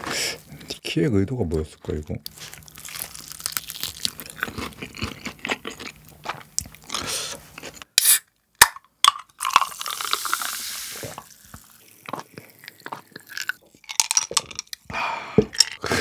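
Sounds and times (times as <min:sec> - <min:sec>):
crunching and chewing: 0:01.8 - 0:07.9, 0:11.0 - 0:14.9
can opening hiss: 0:08.0 - 0:08.3, 0:09.7 - 0:11.4.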